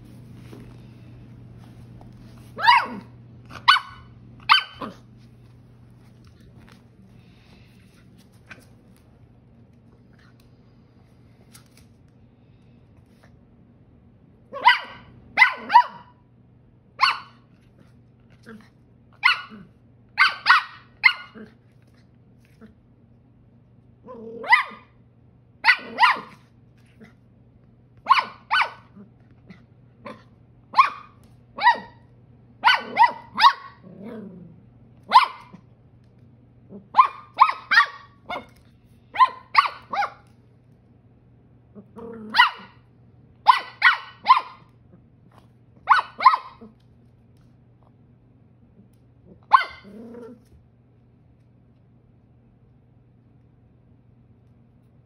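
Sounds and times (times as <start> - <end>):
puppy barking: 2.6 - 5.1, 14.5 - 16.2, 17.0 - 17.4, 19.2 - 21.5, 24.4 - 25.0, 25.6 - 26.5, 28.0 - 29.0, 30.0 - 33.9, 35.0 - 35.6, 36.8 - 40.3, 42.3 - 42.8, 43.4 - 44.7, 45.8 - 46.8, 49.4 - 50.0
puppy growling: 24.0 - 24.6, 33.7 - 34.7, 41.7 - 42.7, 48.8 - 50.6.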